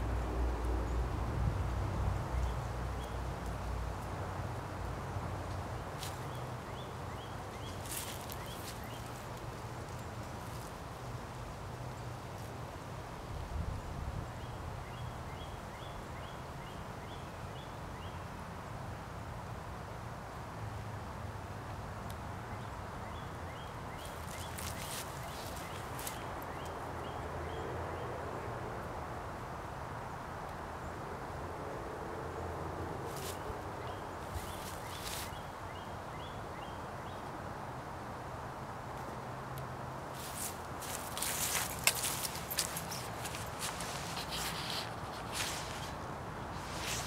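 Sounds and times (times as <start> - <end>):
outdoor background noise: 0.0 - 47.0
brief rustles: 40.2 - 46.0.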